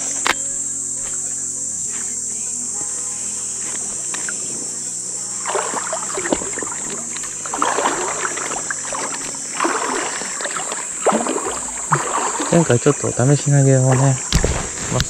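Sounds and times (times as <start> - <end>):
high drone of insects: 0.0 - 15.0
water sloshing and splashing: 5.2 - 15.0.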